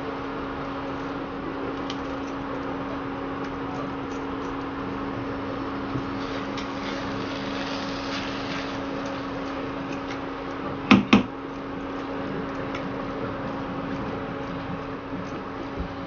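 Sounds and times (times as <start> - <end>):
cooktop humming: 0.0 - 16.0
sharp knocks: 10.9 - 11.3.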